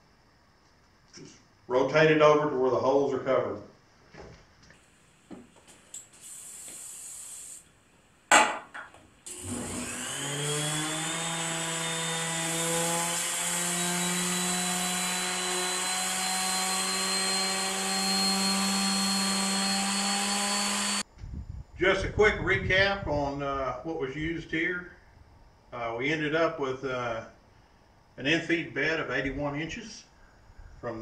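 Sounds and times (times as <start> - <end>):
short hiss: 5.6 - 7.8
knock: 8.3 - 9.0
orbital sander running: 9.3 - 21.0.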